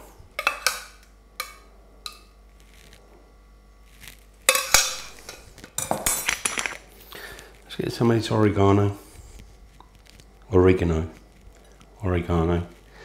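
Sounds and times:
kitchenware clattering: 4.5 - 6.8.

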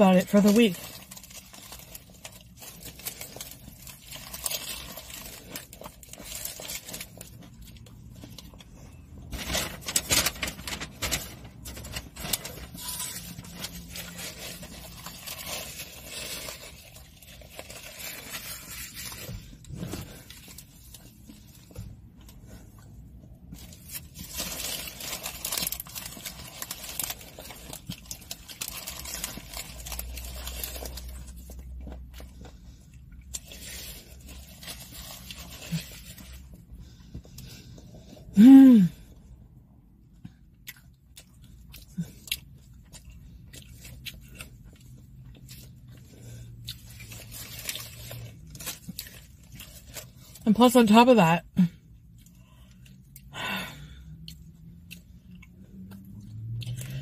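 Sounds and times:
wrapper paper rustling: 9.2 - 21.0, 23.6 - 31.4.

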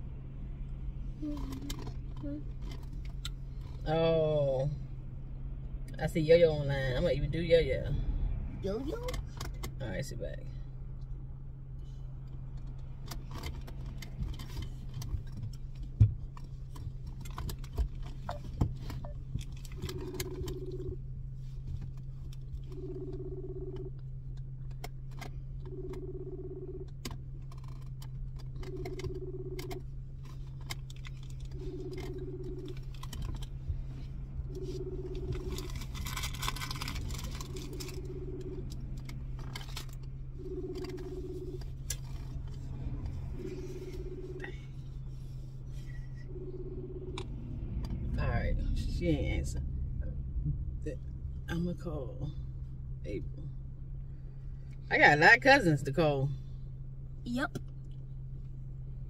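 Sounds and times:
steady low hum: 0.0 - 59.0
phone ringback tone: 19.9 - 21.0, 22.8 - 23.9, 25.7 - 26.8, 28.7 - 29.7, 31.6 - 32.8, 34.4 - 35.7, 37.5 - 38.8, 40.4 - 41.6, 43.3 - 44.6, 46.2 - 47.4.

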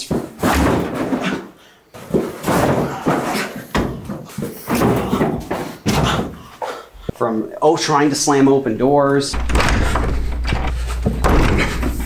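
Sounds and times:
furniture banging and rattling: 0.0 - 6.5, 9.3 - 12.0
man slamming into wooden doors: 0.0 - 6.5, 9.3 - 12.0.

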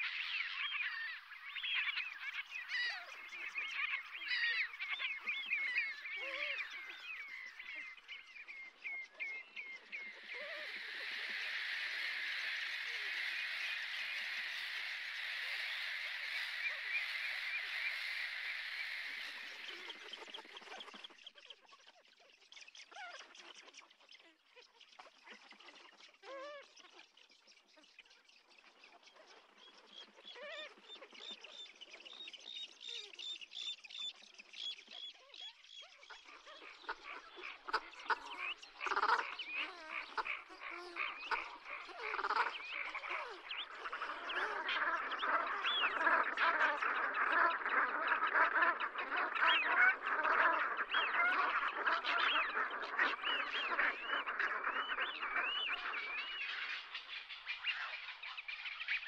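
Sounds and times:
geese calling: 9.3 - 20.9, 36.7 - 57.7.

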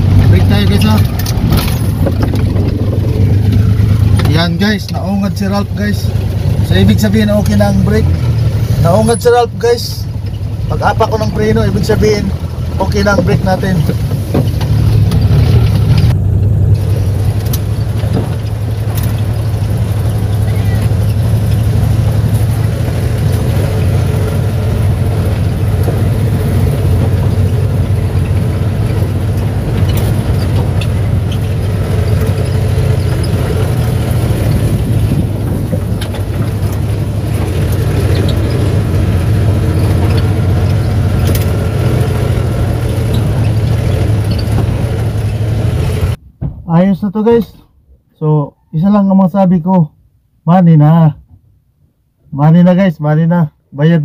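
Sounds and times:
vehicle body knocks and rattles: 0.0 - 4.4, 12.0 - 16.1, 17.3 - 45.5
engine low drone: 0.0 - 46.3
tyre and road noise: 0.0 - 47.5.

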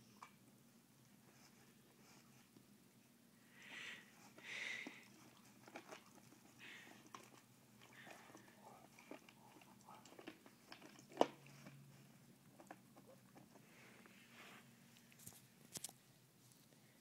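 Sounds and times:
dogs gnawing on a bone: 4.2 - 13.7.

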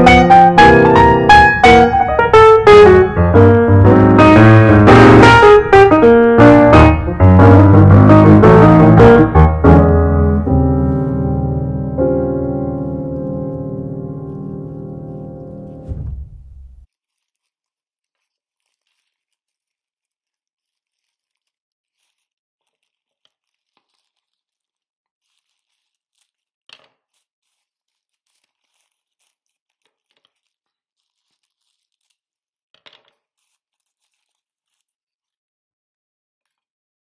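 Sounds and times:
tissue paper and tinsel crinkling: 10.5 - 15.9, 16.8 - 35.4.

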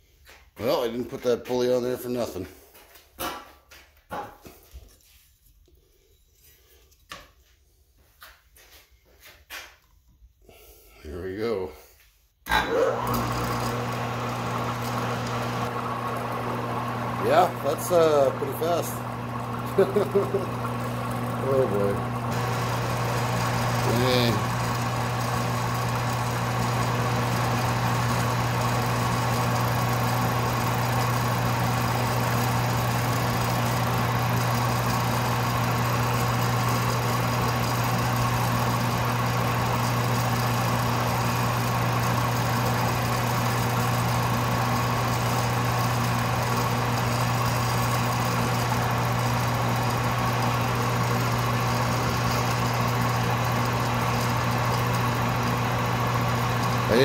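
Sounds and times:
metal lathe motor hum: 12.5 - 57.0.

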